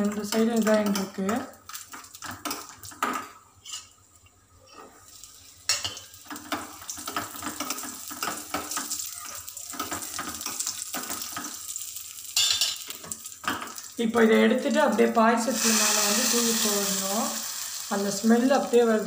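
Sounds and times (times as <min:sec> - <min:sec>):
nuts frying and sizzling in a pan: 0:00.0 - 0:04.0, 0:05.0 - 0:19.0
metal spoon scraping a pan: 0:03.6 - 0:04.0, 0:04.7 - 0:08.9.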